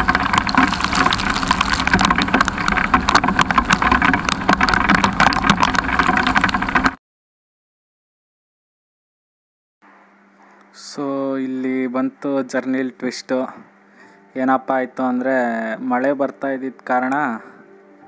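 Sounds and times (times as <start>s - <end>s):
rain and wind on microphone: 0.0s - 7.0s.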